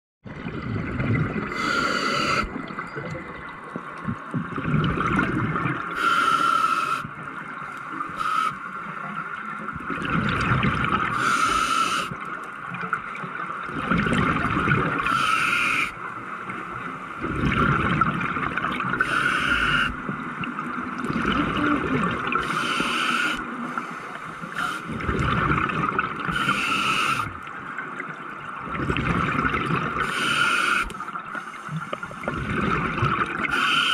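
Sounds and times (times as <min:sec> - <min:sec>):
gurgling exhaled bubbles: 0:00.3 - 0:06.0, 0:09.8 - 0:11.7, 0:13.6 - 0:15.6, 0:17.2 - 0:23.5, 0:24.8 - 0:27.5, 0:28.6 - 0:30.9, 0:32.0 - 0:33.9
regulator hissing inhale: 0:01.5 - 0:02.5, 0:06.0 - 0:07.1, 0:08.2 - 0:08.7, 0:11.1 - 0:12.1, 0:15.1 - 0:16.0, 0:19.0 - 0:20.0, 0:22.4 - 0:24.9, 0:26.3 - 0:27.4, 0:30.0 - 0:32.2, 0:33.5 - 0:33.9.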